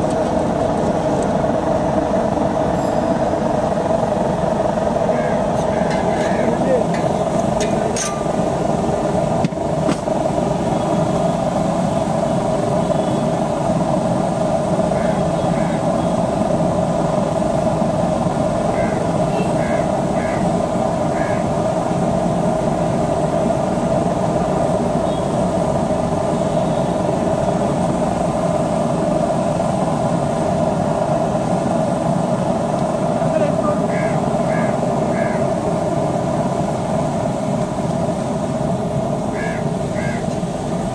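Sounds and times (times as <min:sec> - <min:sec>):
mechanical drone with hum: 0:00.0 - 0:40.9
faint distant voices: 0:05.0 - 0:08.6, 0:39.2 - 0:40.9.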